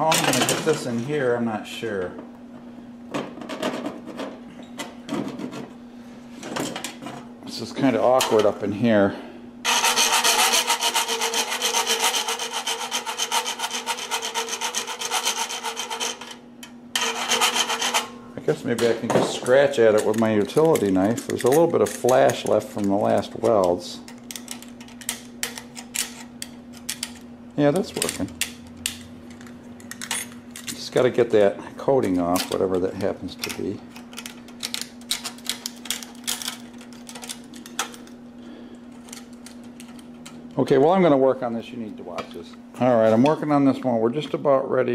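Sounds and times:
steady low hum: 0:00.0 - 0:44.9
hand file scraping metal rod: 0:09.7 - 0:16.4, 0:17.0 - 0:18.1
knife blade scraping paint off metal: 0:17.0 - 0:18.1.

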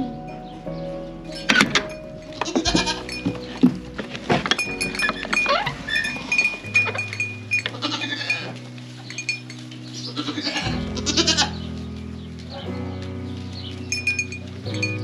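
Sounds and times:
soft background music: 0:00.0 - 0:15.0
goats bleating: 0:02.4 - 0:03.2, 0:07.6 - 0:08.6, 0:10.0 - 0:11.7.

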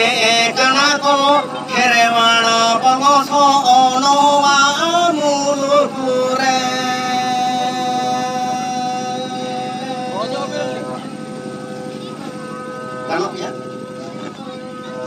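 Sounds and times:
man singing into a microphone: 0:00.0 - 0:11.1.

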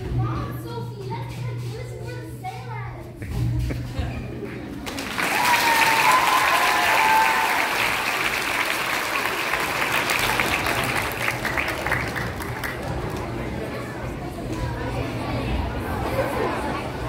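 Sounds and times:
children applauding: 0:04.8 - 0:13.4.

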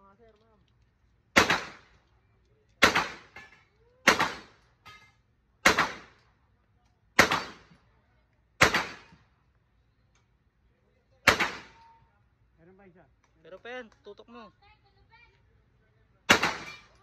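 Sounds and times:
single gunshots: 0:01.4 - 0:01.9, 0:02.8 - 0:03.4, 0:04.0 - 0:04.6, 0:05.6 - 0:06.2, 0:07.2 - 0:07.7, 0:08.6 - 0:09.2, 0:11.2 - 0:11.8, 0:16.3 - 0:17.0.

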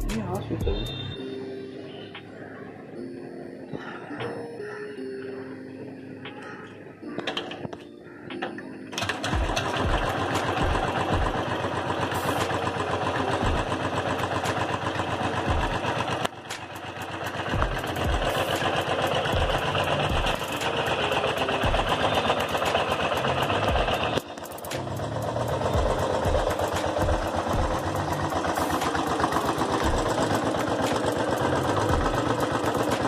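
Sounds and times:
motorcycle engine starting and idling: 0:07.2 - 0:33.0.

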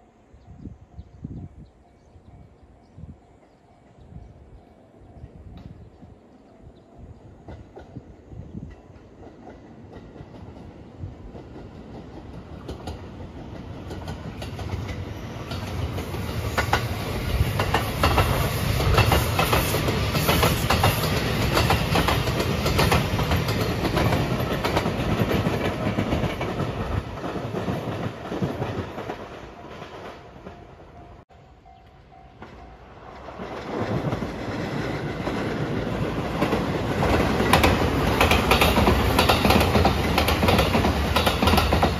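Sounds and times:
electric train passing: 0:00.0 - 0:41.9
wheels clicking over rail joints: 0:07.4 - 0:30.6, 0:31.7 - 0:41.9.

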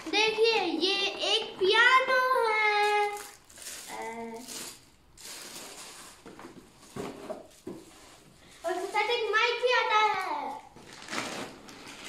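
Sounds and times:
child's voice: 0:00.0 - 0:04.6, 0:08.6 - 0:10.8
gift packaging rustling: 0:00.0 - 0:12.0.

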